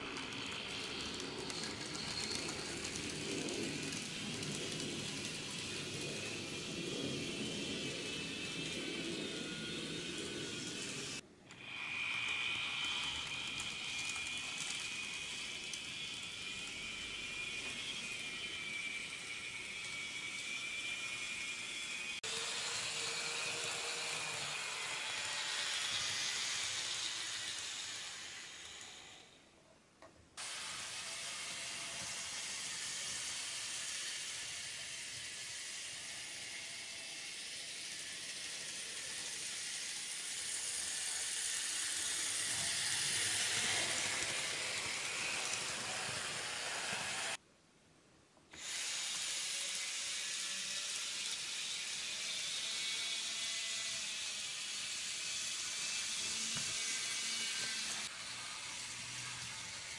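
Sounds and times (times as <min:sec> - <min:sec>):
model train whirring on track: 0:00.0 - 0:47.4, 0:48.5 - 0:59.9.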